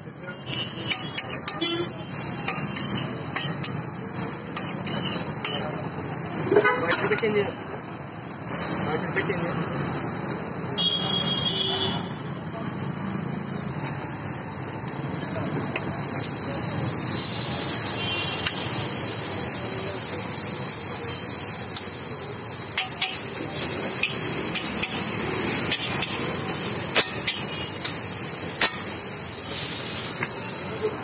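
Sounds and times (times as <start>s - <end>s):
food sizzling on griddle: 0.1s - 31.0s
metal spatula tapping and scraping: 0.8s - 5.8s, 6.4s - 7.4s, 22.7s - 29.0s.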